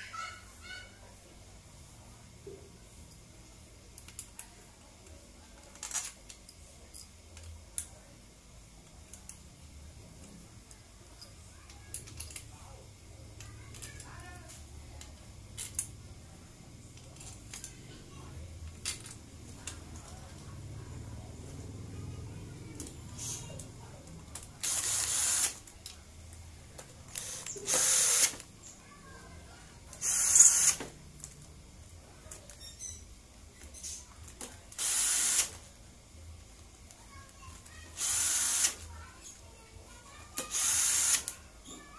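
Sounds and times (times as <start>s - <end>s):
light clicks of handled parts: 4.0s - 8.0s, 10.2s - 12.6s, 16.9s - 17.8s, 18.6s - 20.5s
cordless drill spinning: 24.6s - 25.6s, 27.1s - 28.4s, 30.0s - 30.8s, 34.8s - 35.5s, 38.0s - 38.8s, 40.5s - 41.3s.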